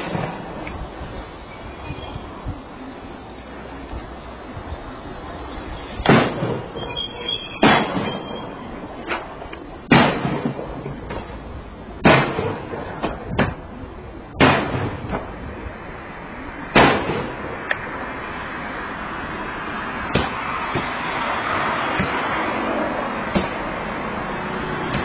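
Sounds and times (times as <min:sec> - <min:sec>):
heavy bangs on car body: 0:06.0 - 0:06.8, 0:07.6 - 0:08.2, 0:09.8 - 0:11.4, 0:12.0 - 0:13.6, 0:14.4 - 0:15.3, 0:16.7 - 0:17.6, 0:20.1 - 0:21.0, 0:23.3 - 0:23.6.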